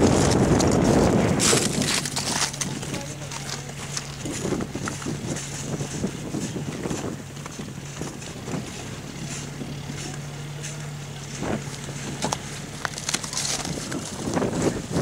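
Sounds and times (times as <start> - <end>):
shovel scraping slush and ice: 0.0 - 4.6
vehicle engine humming: 0.0 - 15.0
wind on microphone: 0.0 - 15.0.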